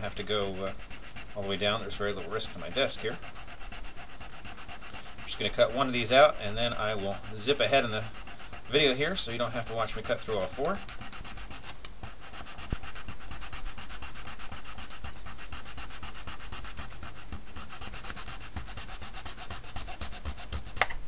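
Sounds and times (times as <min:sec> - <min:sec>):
hobby saw rasping: 0:00.0 - 0:11.5.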